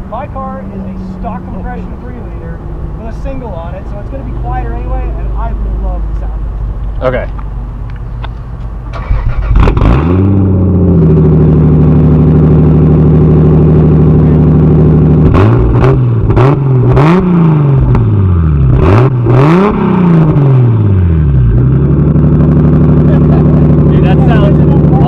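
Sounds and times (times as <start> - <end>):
car engine starting and idling: 0.0 - 25.0
engine revving: 8.8 - 25.0.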